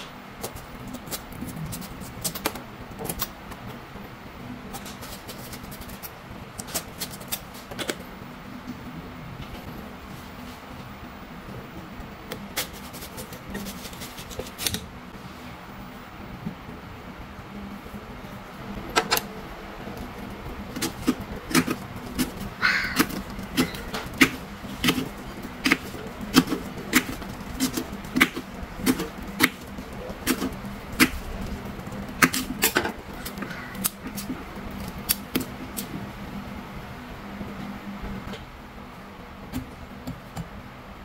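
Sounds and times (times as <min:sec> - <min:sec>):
low steady hum: 0:00.0 - 0:41.0
knife scraping rind: 0:12.5 - 0:14.8, 0:20.7 - 0:35.9.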